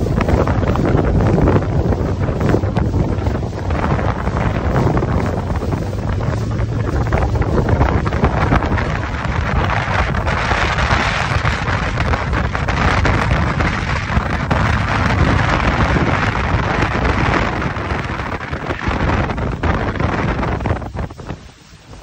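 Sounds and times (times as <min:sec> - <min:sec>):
water rushing along hull: 0:00.0 - 0:22.0
wind buffeting microphone: 0:00.0 - 0:22.0.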